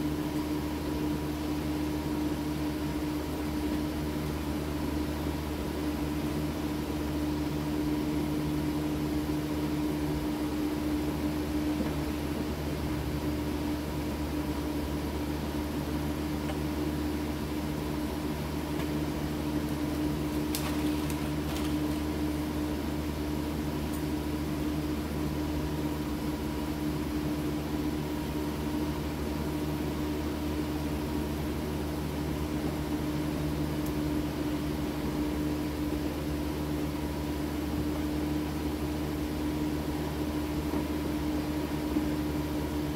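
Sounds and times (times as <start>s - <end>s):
steady mechanical hum: 0.0s - 42.9s.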